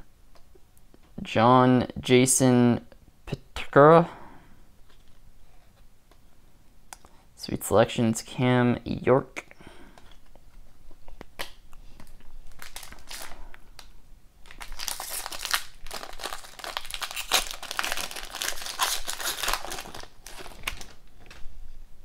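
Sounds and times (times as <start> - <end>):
foil wrapper crinkling and tearing: 12.4 - 21.4.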